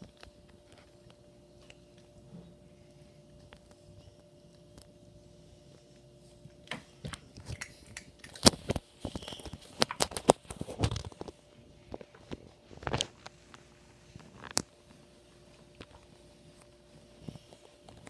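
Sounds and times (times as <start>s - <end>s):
kitten crunching dry food: 7.4s - 14.8s.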